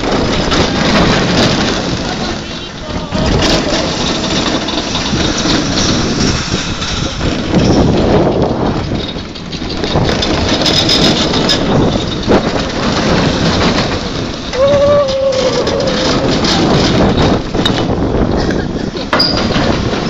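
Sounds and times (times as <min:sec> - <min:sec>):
roller coaster rumbling and rattling: 0:00.0 - 0:20.0
person shouting: 0:14.6 - 0:16.5.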